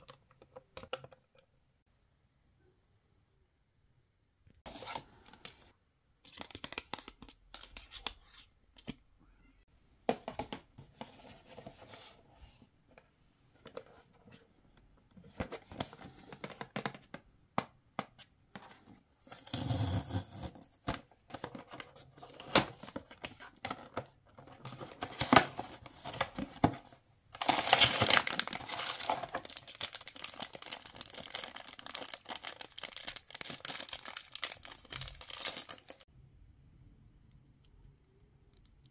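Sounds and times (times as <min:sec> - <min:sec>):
plastic wrapper crinkling: 0:27.4 - 0:36.0.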